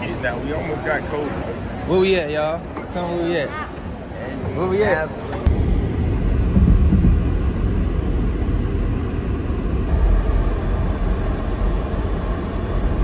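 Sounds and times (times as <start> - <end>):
uneven low rumbling: 5.4 - 13.0.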